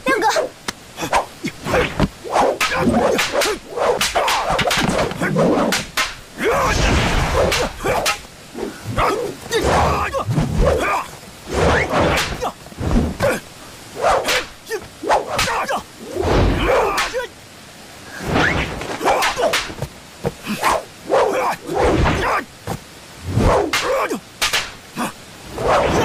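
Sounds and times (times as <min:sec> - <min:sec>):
sword whooshing through air: 0:25.5 - 0:26.0.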